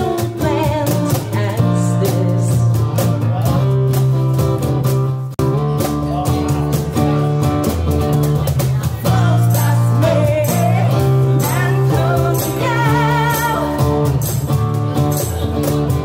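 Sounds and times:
low bass notes: 0:00.0 - 0:16.0
strummed acoustic guitar: 0:00.0 - 0:16.0
person singing with vibrato: 0:09.0 - 0:14.0.

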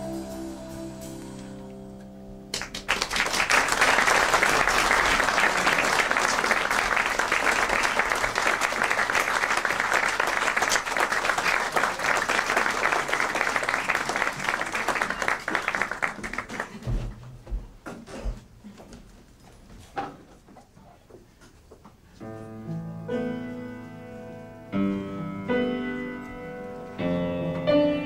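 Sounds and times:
audience applause: 0:02.5 - 0:17.0.

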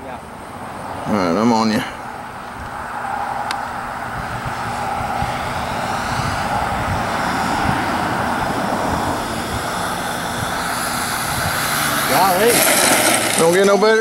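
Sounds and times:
model airplane engine running: 0:03.5 - 0:14.0.

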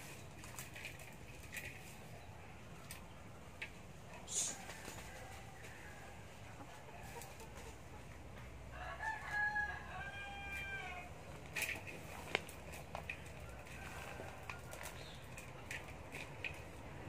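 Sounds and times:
rooster crowing: 0:04.3 - 0:06.3, 0:08.7 - 0:11.1, 0:13.4 - 0:15.0.

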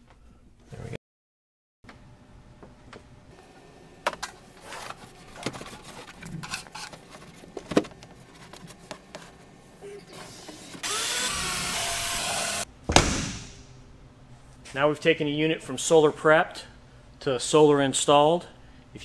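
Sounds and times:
cordless drill whine: 0:10.8 - 0:12.7.

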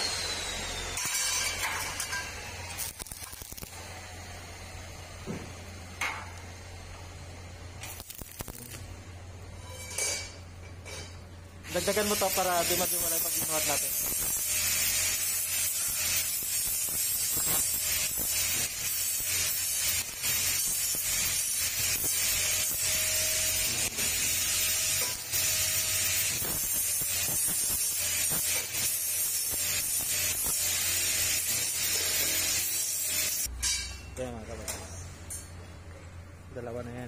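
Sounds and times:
electric arc welding sizzle: 0:00.0 - 0:09.5, 0:11.6 - 0:33.5.

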